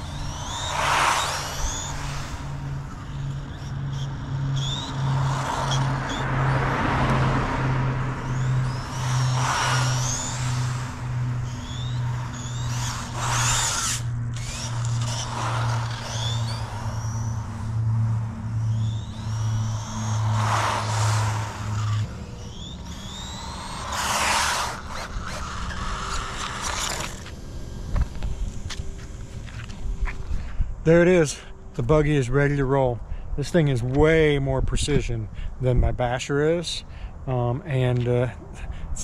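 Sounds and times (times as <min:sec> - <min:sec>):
rc car motor whining: 0:00.0 - 0:30.4
tyre noise on asphalt: 0:00.0 - 0:30.6.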